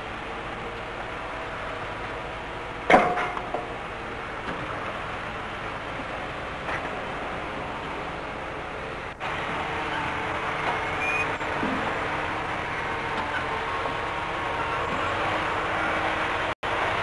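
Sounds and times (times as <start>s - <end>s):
crane engine running: 0.0s - 17.0s.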